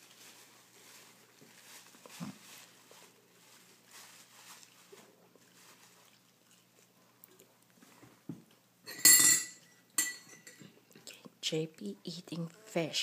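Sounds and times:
paper napkin rustling: 0.0s - 6.4s.

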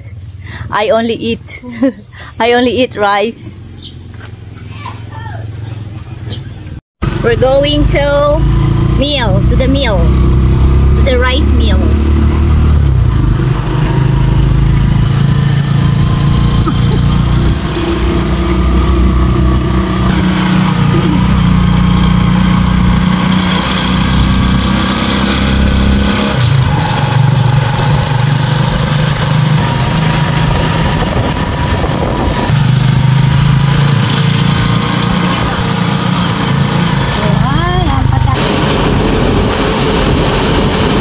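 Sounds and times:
motorcycle engine running: 3.0s - 41.0s.

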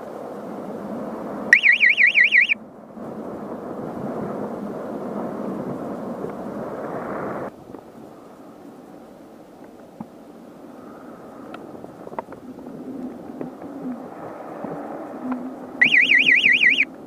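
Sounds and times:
warbling electronic alarm tone: 1.5s - 2.6s, 15.8s - 16.9s
wind rushing over microphone: 2.4s - 8.9s, 10.2s - 17.0s.

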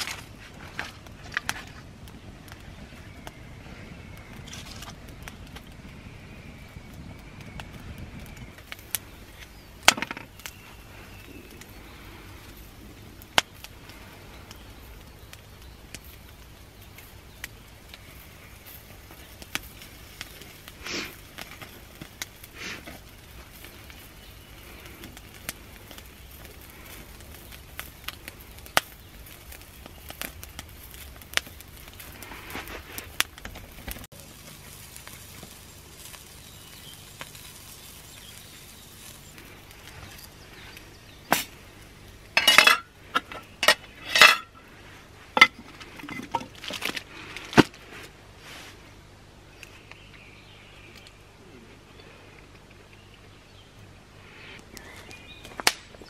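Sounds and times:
wood fire crackling: 0.0s - 56.0s
cookware and cutlery clattering: 42.4s - 44.6s, 45.4s - 46.6s.

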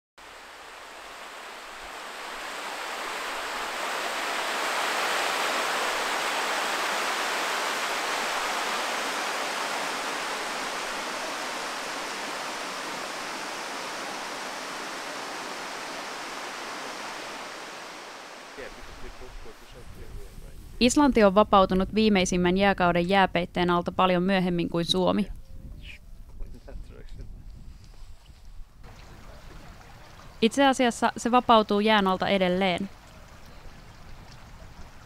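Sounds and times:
waterfall rushing: 0.2s - 19.7s.

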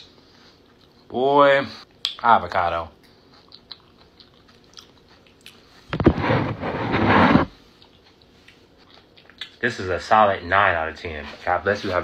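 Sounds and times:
person chewing food: 0.3s - 1.1s, 2.9s - 6.1s, 7.5s - 9.6s
loud rough noise: 6.0s - 7.5s.

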